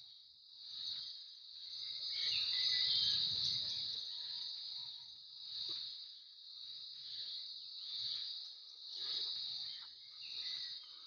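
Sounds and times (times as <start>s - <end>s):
insects chirring: 0.0s - 11.0s.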